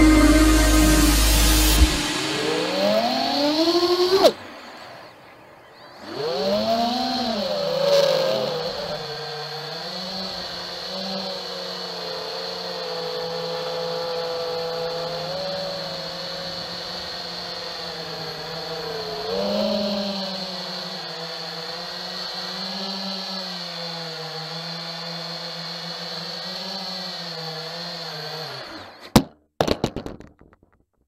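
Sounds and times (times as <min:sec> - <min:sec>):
constant high tone: 0:00.0 - 0:04.3, 0:11.8 - 0:22.5
quadcopter motors whining: 0:00.0 - 0:29.1.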